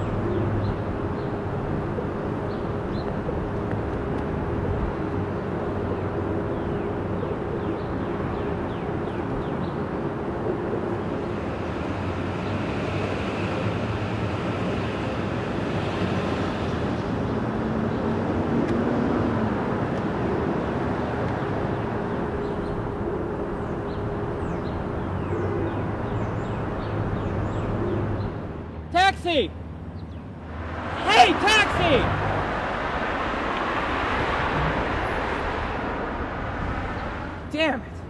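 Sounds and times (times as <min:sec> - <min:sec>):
street traffic noise: 0:00.0 - 0:38.0
vehicle passing: 0:29.5 - 0:38.0.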